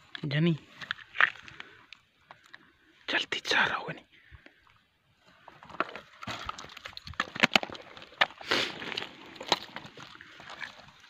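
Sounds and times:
clicks and scrapes on stony ground: 0.0s - 2.7s, 5.2s - 11.0s.

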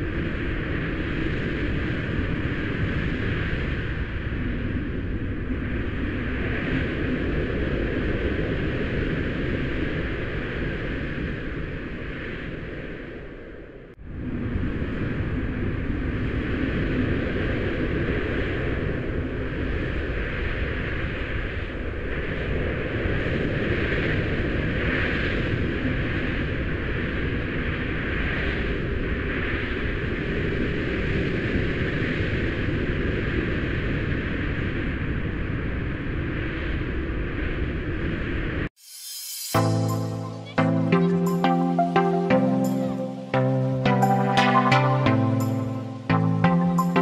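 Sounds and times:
hiss: 38.8s - 39.6s.

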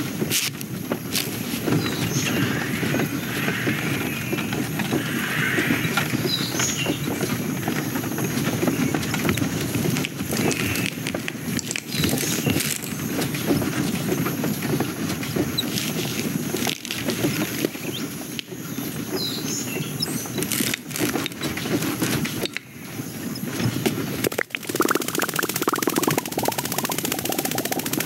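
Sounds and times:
patter of small clicks and rustles: 8.4s - 18.5s, 20.4s - 22.6s
faint high chirps: 24.4s - 28.0s.

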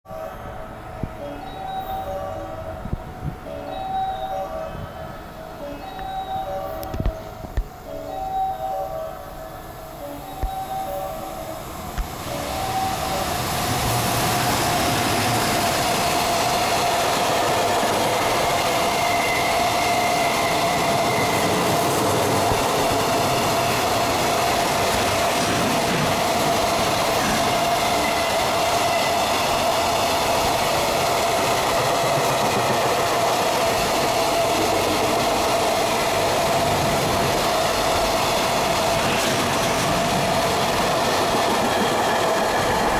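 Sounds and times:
freight train rumbling past: 9.6s - 42.9s.

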